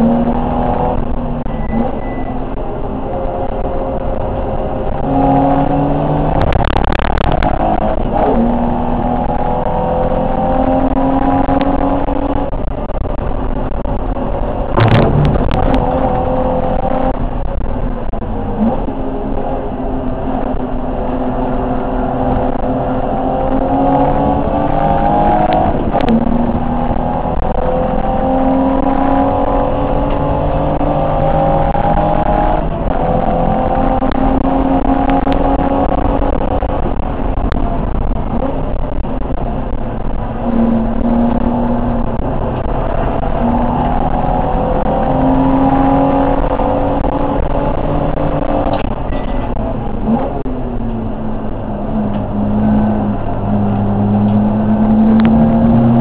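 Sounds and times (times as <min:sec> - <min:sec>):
race car engine revving: 0:00.0 - 0:56.0
sharp knocks: 0:14.8 - 0:16.3.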